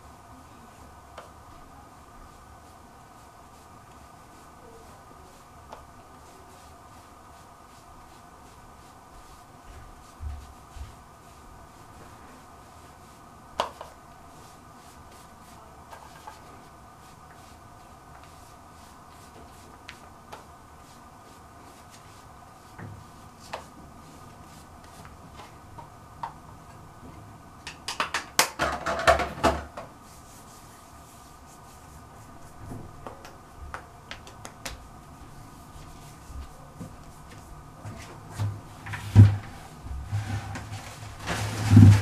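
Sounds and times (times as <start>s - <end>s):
steady hum: 0.0s - 27.7s.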